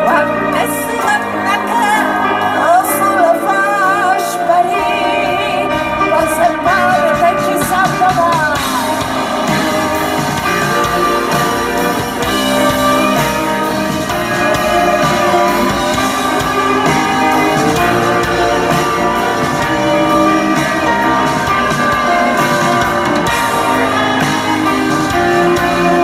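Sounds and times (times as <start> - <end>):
woman singing ornamented melody: 0.0 - 9.2
live band playing: 0.0 - 26.0.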